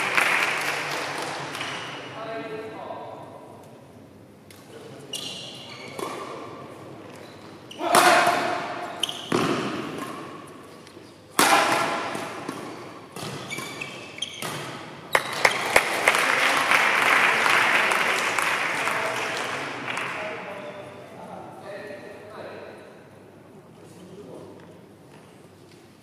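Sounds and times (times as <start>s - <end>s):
crowd cheering and clapping: 0.0s - 1.3s, 15.2s - 20.0s
racket hitting shuttlecock: 7.8s - 10.6s, 11.3s - 15.5s.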